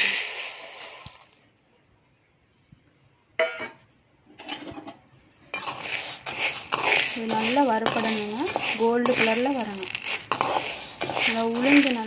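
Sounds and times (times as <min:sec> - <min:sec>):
dry lentils stirred in metal pan: 0:00.0 - 0:01.2, 0:05.6 - 0:12.0.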